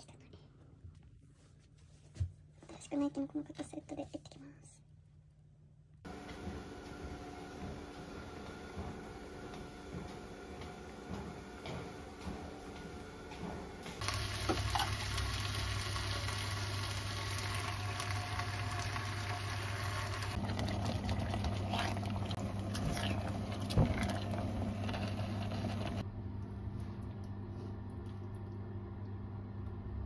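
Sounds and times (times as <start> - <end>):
vegetables sizzling in a pot: 14.0 - 26.0.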